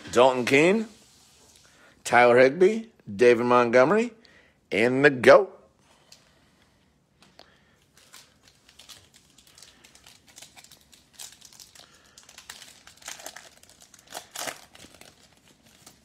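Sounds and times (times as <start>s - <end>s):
foil wrapper crinkling: 7.9s - 16.0s.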